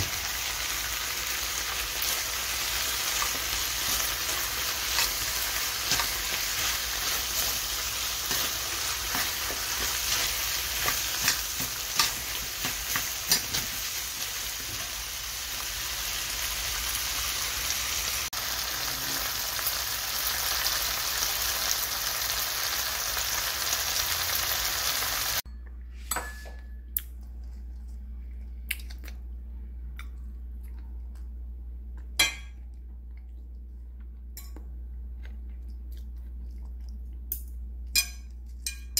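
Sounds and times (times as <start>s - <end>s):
food sizzling in a frying pan: 0.0s - 25.4s.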